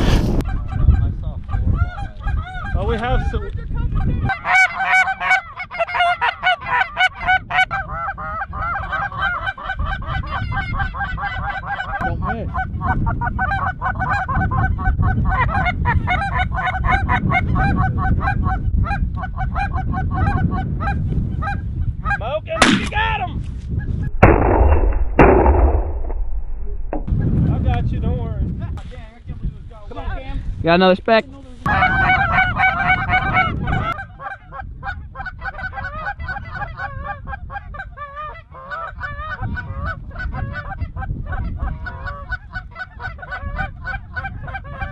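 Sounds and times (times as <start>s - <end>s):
goose call honks and clucks: 0.4s - 3.0s, 3.8s - 22.3s, 31.7s - 44.9s
geese honking: 4.2s - 22.2s, 31.7s - 44.9s
shotgun fire: 22.6s - 23.0s, 24.1s - 27.1s.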